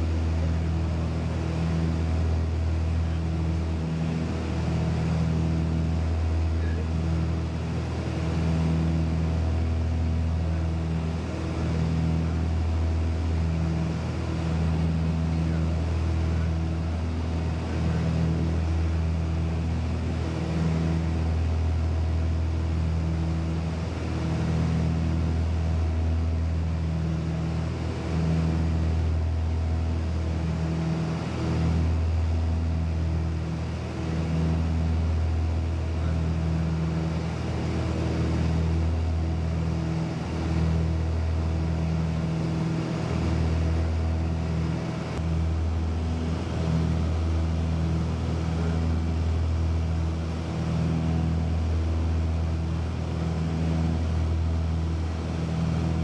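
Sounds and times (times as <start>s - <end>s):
aircraft engine droning: 0.0s - 56.0s.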